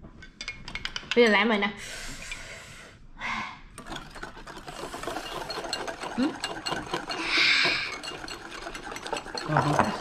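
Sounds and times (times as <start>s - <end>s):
whisk scraping against cup: 3.8s - 10.0s.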